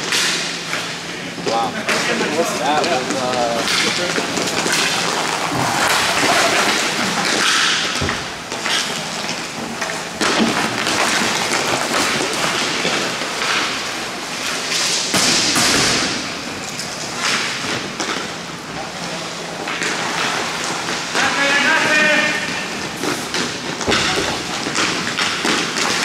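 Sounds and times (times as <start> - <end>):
hockey stick and puck knocks: 23.3 - 26.0.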